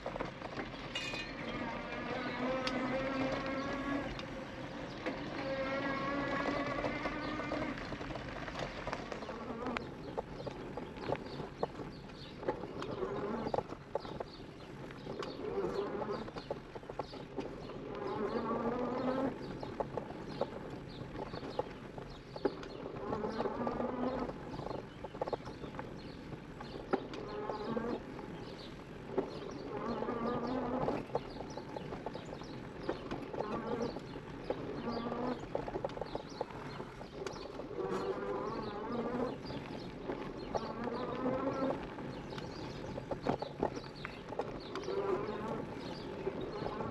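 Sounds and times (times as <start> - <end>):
bike clicks and knocks on dirt: 0.0 - 46.9
electric bike motor whining: 1.4 - 8.2.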